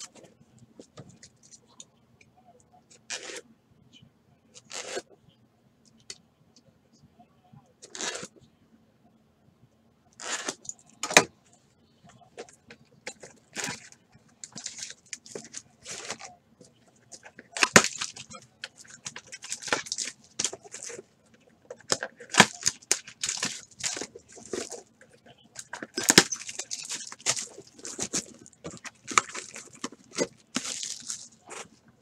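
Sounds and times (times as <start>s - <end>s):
cardboard scraping: 4.6s - 5.1s, 10.2s - 10.6s
foil wrapping crinkling: 17.2s - 21.0s, 21.7s - 24.8s, 25.5s - 31.7s
card packs handled on tabletop: 25.5s - 31.8s.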